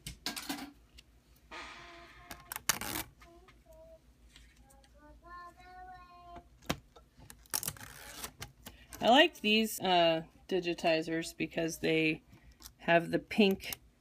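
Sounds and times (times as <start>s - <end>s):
faint singing in background music: 3.2s - 6.5s.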